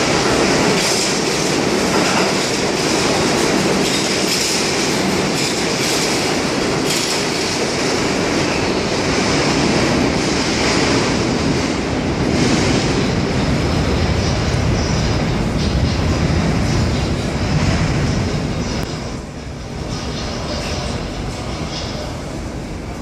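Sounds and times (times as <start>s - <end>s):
wheels clacking over rail joints: 0.0s - 8.6s
subway train rumbling on rails: 0.0s - 23.0s.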